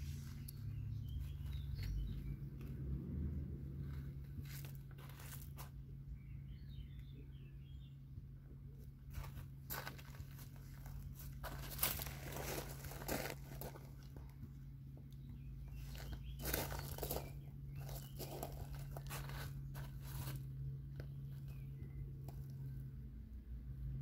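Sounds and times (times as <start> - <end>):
steady low hum: 0.0 - 24.0
footsteps crunching on gravel: 3.9 - 5.8, 9.1 - 14.4, 15.7 - 21.6.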